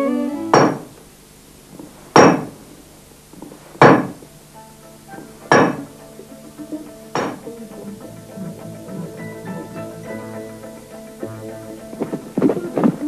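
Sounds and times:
faint music: 0.0 - 13.0
hammer blows on metal: 0.5 - 0.9.

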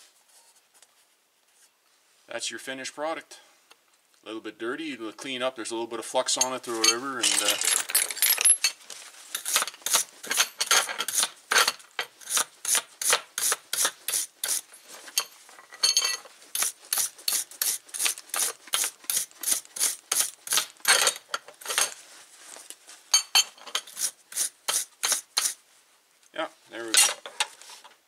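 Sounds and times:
wire brush scraping metal: 9.2 - 11.3, 12.2 - 15.2, 16.5 - 21.0, 23.8 - 25.6.

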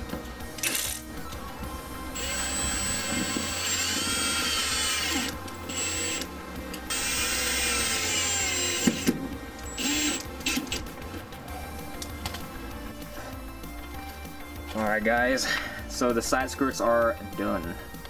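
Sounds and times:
power drill driving screws: 2.2 - 6.3, 6.9 - 10.8.

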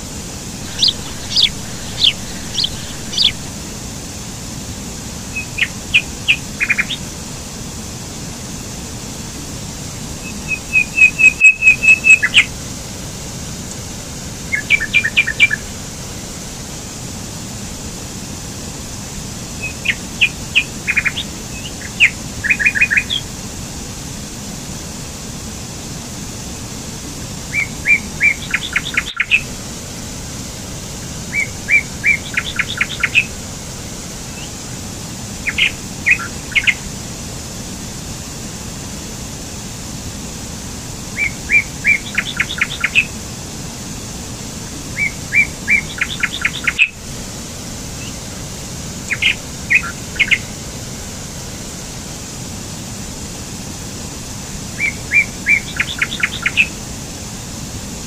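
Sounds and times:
waterfall over rocks: 0.0 - 58.0
songbird singing: 0.5 - 3.8, 5.3 - 7.2, 10.1 - 12.6, 14.4 - 15.7, 19.5 - 23.3, 27.5 - 29.5, 31.0 - 33.4, 34.2 - 36.9, 41.1 - 43.2, 44.8 - 47.0, 48.0 - 48.2, 49.0 - 50.6, 54.7 - 56.8.

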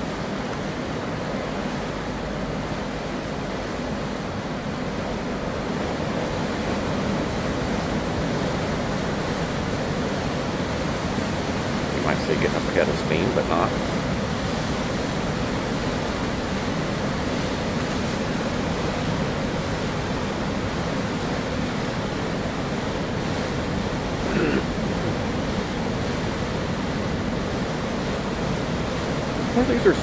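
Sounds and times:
propeller wash churning water: 0.0 - 30.0.

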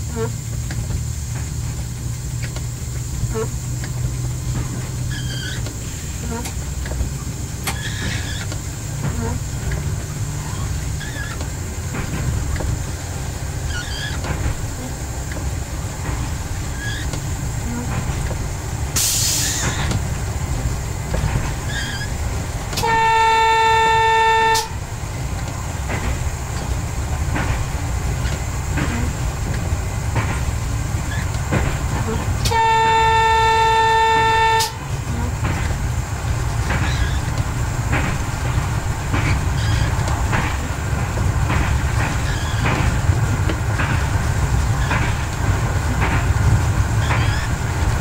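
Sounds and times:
railcar rumbling along track: 0.0 - 48.0
train horn: 0.1 - 0.4, 9.0 - 9.5, 22.7 - 24.9, 32.0 - 35.4
brief hiss: 19.0 - 19.9.

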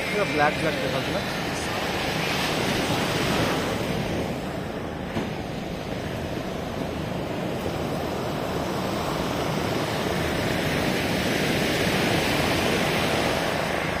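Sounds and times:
ocean surf washing up beach: 0.0 - 14.0
wind on microphone: 0.0 - 14.0.

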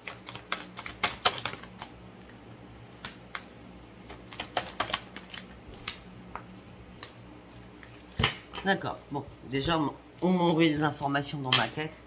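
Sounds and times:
cards clicking and tapping on table: 4.3 - 7.1.

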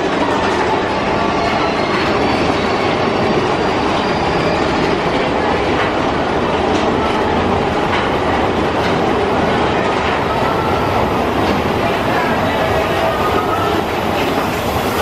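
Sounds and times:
roller coaster rumbling on track: 0.0 - 15.0
faint track clacks: 4.8 - 10.8.

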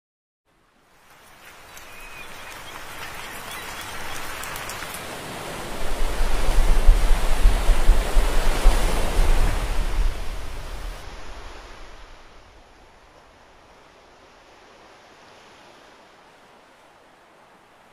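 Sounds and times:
sea water splashing and fizzing: 0.9 - 12.2
deep rumble: 5.9 - 11.0.

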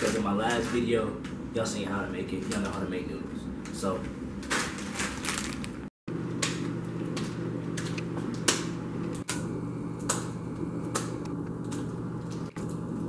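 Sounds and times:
microwave oven humming: 6.1 - 13.0.

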